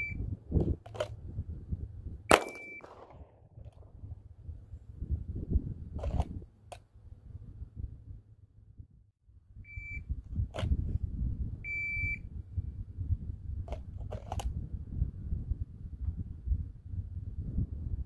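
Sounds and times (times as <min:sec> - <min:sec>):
wind rumble on microphone: 0:00.0 - 0:18.0
handgun shot: 0:02.3 - 0:03.4
sharp gunshot cracks: 0:02.3 - 0:03.4
shot timer beep: 0:02.4 - 0:02.8.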